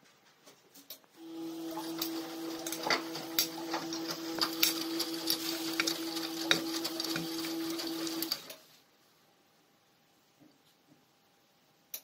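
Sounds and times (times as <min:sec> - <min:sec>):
washing machine motor whine: 0:01.2 - 0:08.6.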